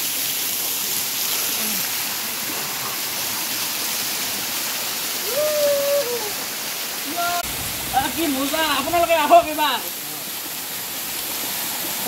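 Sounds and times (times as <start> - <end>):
waterfall pouring onto rock: 0.0 - 12.0.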